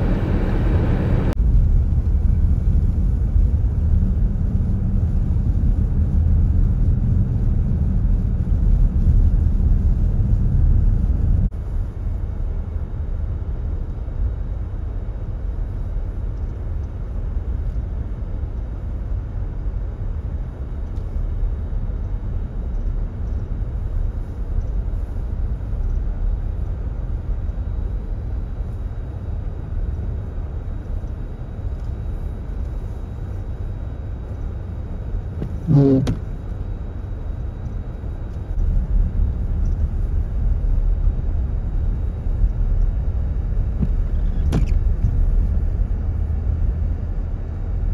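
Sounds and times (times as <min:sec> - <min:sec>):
vehicle engine and tyres rumbling: 0:00.0 - 0:47.9
brief pitched sound: 0:35.5 - 0:36.2.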